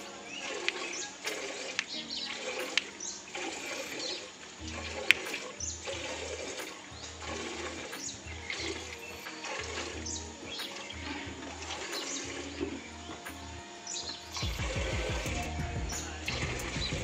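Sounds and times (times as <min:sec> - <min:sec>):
milk squirting into steel pail: 0:00.0 - 0:13.3.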